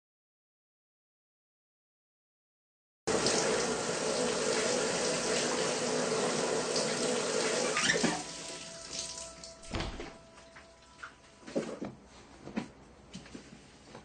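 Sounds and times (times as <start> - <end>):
shower water running: 3.1 - 11.4.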